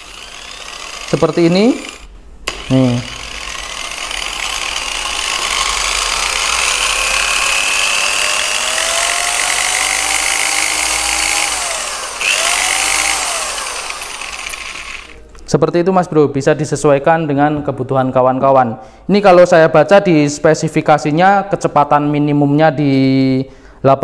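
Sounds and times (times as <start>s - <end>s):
electric polisher motor whine: 0.0s - 15.2s.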